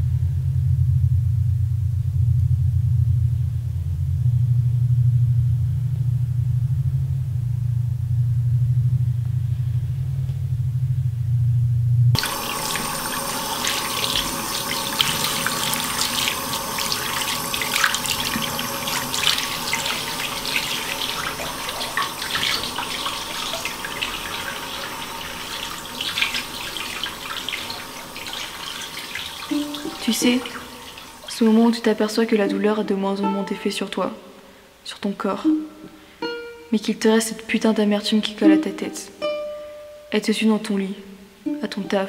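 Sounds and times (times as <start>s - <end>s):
low rumbling hum: 0.0s - 33.6s
tap running into sink: 12.2s - 31.3s
water splashing over wrists: 12.2s - 32.4s.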